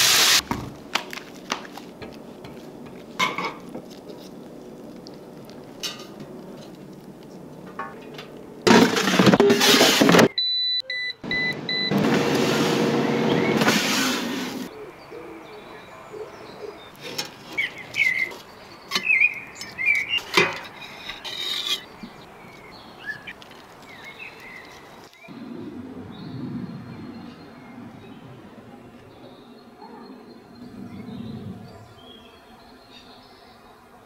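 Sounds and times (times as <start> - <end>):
touch panel beeps: 10.3 - 12.0
loud rushing noise: 11.3 - 14.7
birds chirping: 12.8 - 34.0.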